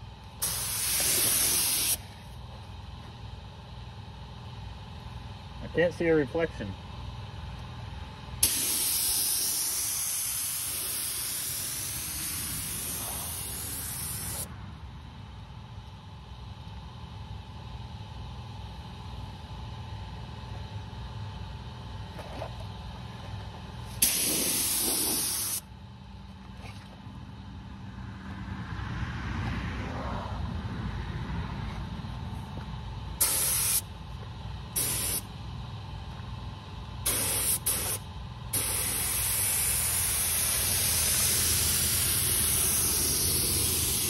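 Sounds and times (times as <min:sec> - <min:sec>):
steady low hum: 0:00.0 - 0:44.0
spray gun air hiss: 0:00.4 - 0:02.1, 0:08.4 - 0:14.5, 0:24.0 - 0:25.6, 0:33.2 - 0:33.9, 0:34.8 - 0:35.3, 0:37.0 - 0:44.0.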